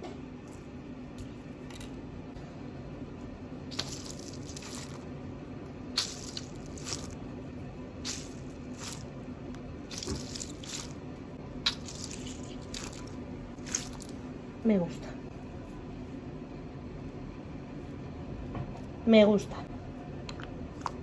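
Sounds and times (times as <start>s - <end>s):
stress ball squishing and crackling: 3.7s - 5.1s, 5.9s - 7.3s, 7.9s - 14.2s.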